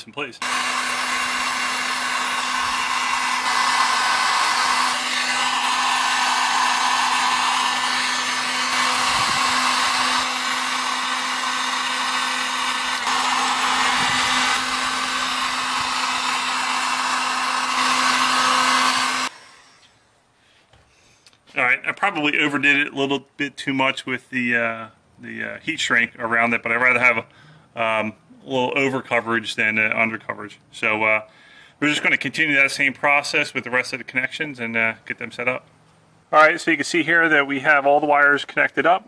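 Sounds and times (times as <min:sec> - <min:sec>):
heat gun blowing: 0:00.4 - 0:20.2.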